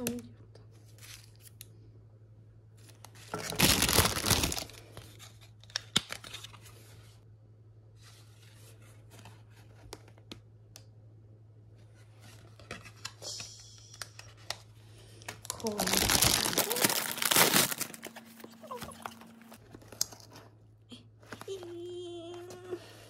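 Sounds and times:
faint low hum: 0.0 - 23.0
plastic wrap crinkling: 2.8 - 6.8, 14.2 - 20.4.

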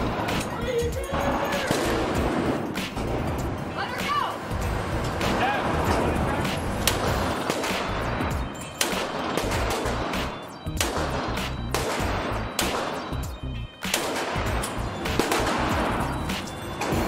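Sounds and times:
background music: 0.0 - 17.0
pistol shots: 1.6 - 2.9, 6.8 - 17.0.

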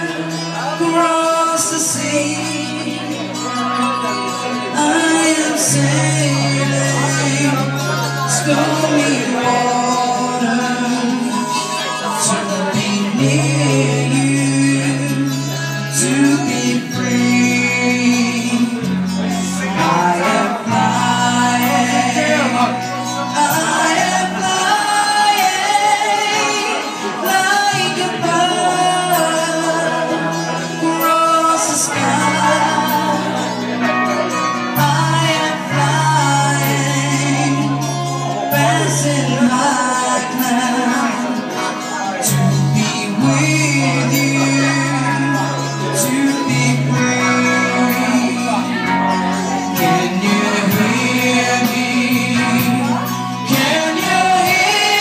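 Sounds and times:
man singing a slow ballad: 0.0 - 55.0
sustained bass notes: 0.0 - 55.0.

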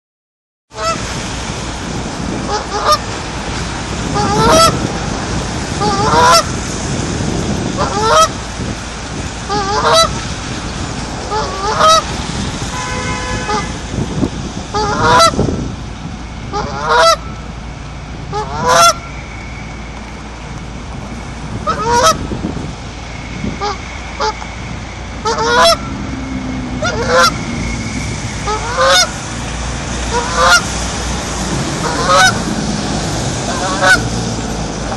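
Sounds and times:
goose honking: 0.8 - 1.0, 2.5 - 3.1, 4.0 - 4.9, 5.8 - 6.6, 7.8 - 8.4, 9.5 - 10.2, 11.3 - 12.1, 12.8 - 13.7, 14.8 - 15.4, 16.5 - 17.3, 18.3 - 19.1, 21.6 - 22.2, 23.6 - 24.4, 25.2 - 26.0, 26.8 - 27.4, 28.4 - 29.2, 30.0 - 30.8, 31.7 - 32.5, 33.4 - 34.2.

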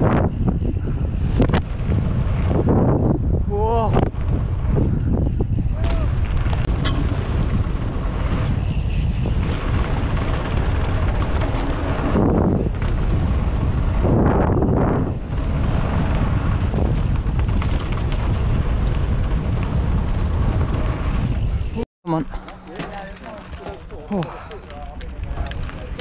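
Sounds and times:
bike tyres on gravel: 0.0 - 21.8, 22.4 - 26.0
wind on microphone: 0.0 - 22.4.

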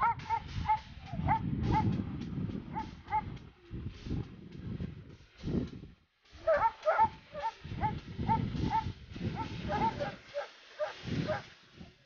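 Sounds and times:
dog barking: 0.0 - 1.9, 6.4 - 11.4.

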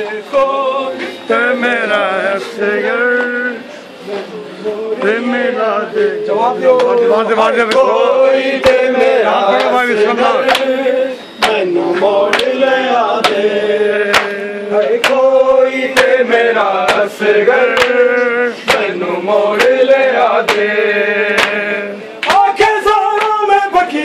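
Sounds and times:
men chanting in unison: 0.0 - 24.0
chest-beating slaps: 14.1 - 14.4.

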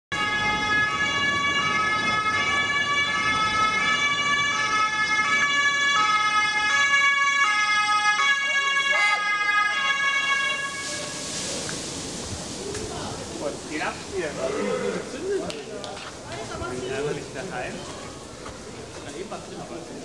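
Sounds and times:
two-tone emergency sirens: 0.1 - 11.4.

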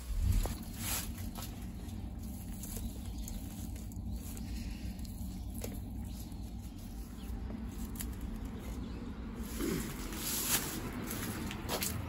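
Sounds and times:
steady low rumble: 0.0 - 12.0
wet rustling and squishing: 0.3 - 8.9.

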